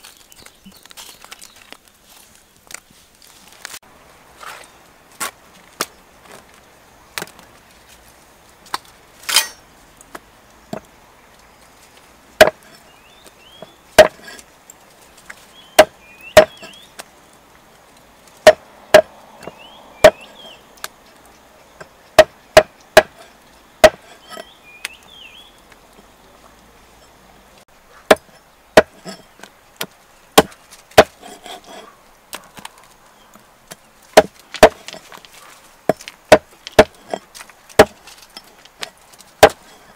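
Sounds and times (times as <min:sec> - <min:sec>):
cleaver chopping on wooden block: 0:12.4 - 0:12.8, 0:13.6 - 0:14.4, 0:15.8 - 0:16.7, 0:18.4 - 0:20.3, 0:21.8 - 0:24.5, 0:28.1 - 0:29.2, 0:29.8 - 0:31.8, 0:34.2 - 0:35.0, 0:35.9 - 0:37.2, 0:37.8 - 0:38.0, 0:39.4 - 0:39.7.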